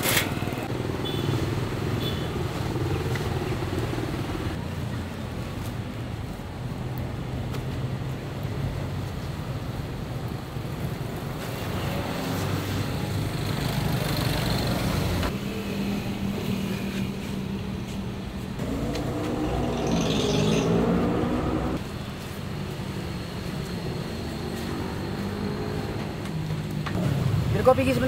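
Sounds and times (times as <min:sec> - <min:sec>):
road traffic: 0:00.0 - 0:28.0
vehicle engine passing: 0:18.6 - 0:21.8.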